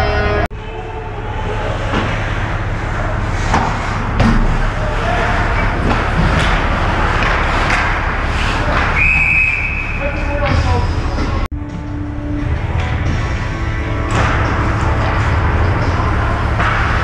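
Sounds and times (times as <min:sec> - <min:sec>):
ice rink rumble and hiss: 0:00.6 - 0:17.0
hockey sticks knocking puck: 0:03.4 - 0:09.8, 0:16.6 - 0:17.0
referee's whistle: 0:08.9 - 0:10.0.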